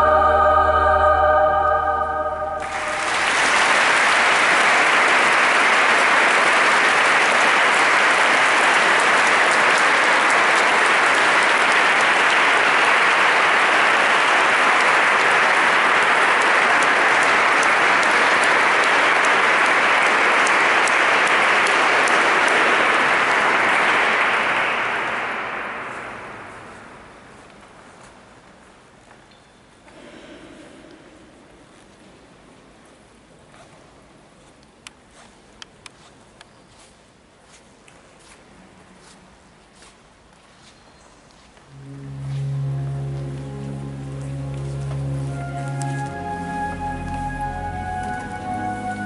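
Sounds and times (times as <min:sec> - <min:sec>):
held musical chord: 0:00.0 - 0:04.5, 0:41.7 - 0:49.0
audience applauding: 0:00.0 - 0:27.2, 0:41.7 - 0:49.0.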